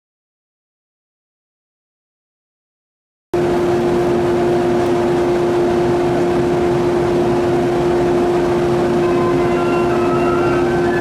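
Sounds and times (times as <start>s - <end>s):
constant rushing noise: 3.4s - 11.0s
electric train humming: 3.4s - 11.0s.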